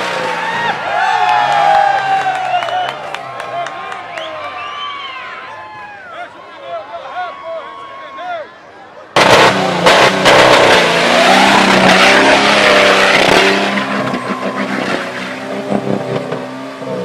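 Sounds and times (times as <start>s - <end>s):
engine at high revs: 9.2s - 17.0s.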